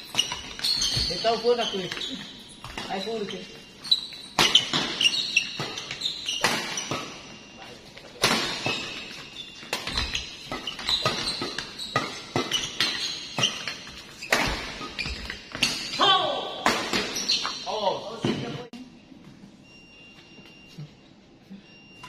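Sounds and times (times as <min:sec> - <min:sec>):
short high squeaks: 0:03.2 - 0:07.6
rackets hitting shuttlecock: 0:04.2 - 0:07.2, 0:08.2 - 0:16.0, 0:16.6 - 0:17.6.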